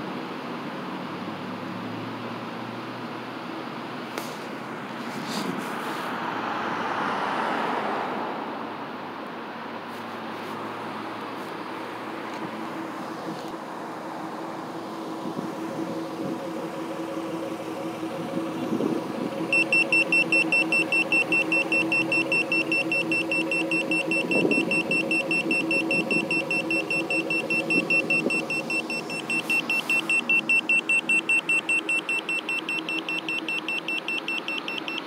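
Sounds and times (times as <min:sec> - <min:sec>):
car engine idling: 0:08.7 - 0:35.0
carbon monoxide meter beeping: 0:19.3 - 0:35.0.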